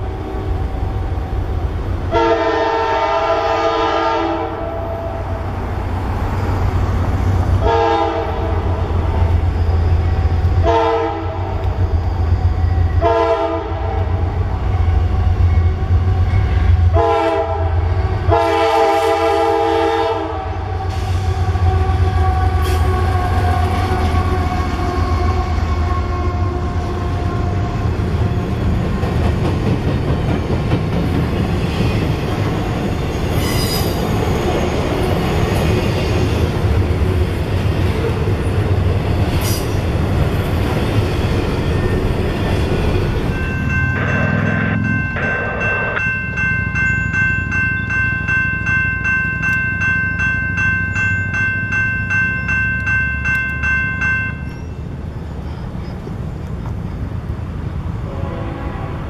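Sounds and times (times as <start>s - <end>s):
low rumble of train: 0.0s - 59.0s
train rolling past: 0.0s - 59.0s
train air horn blasts: 2.1s - 5.5s, 7.6s - 8.8s, 10.6s - 11.6s, 13.0s - 14.3s, 16.7s - 27.7s, 58.0s - 59.0s.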